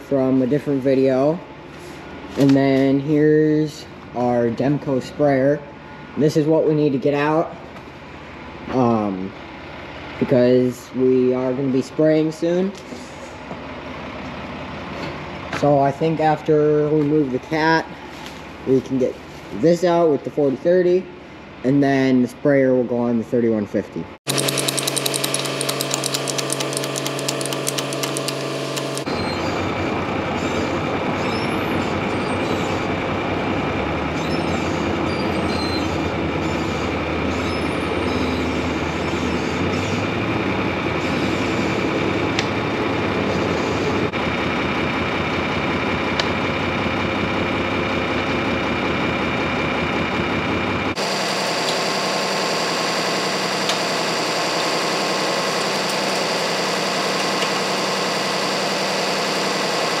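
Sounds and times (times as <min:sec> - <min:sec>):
tractor diesel engine running: 0:24.3 - 1:00.0.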